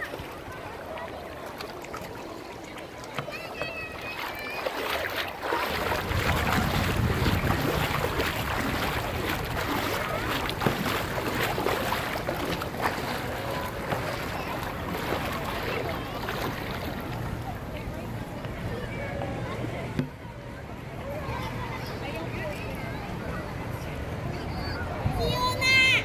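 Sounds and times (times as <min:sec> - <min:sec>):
shallow water lapping: 0:00.0 - 0:18.4
wind buffeting microphone: 0:04.7 - 0:17.6.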